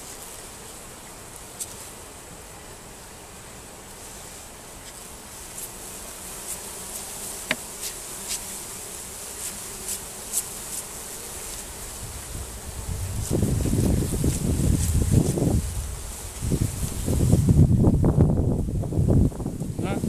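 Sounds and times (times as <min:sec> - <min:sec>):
honey bees buzzing: 0:00.0 - 0:20.0
wind rumbling on microphone: 0:11.9 - 0:20.0.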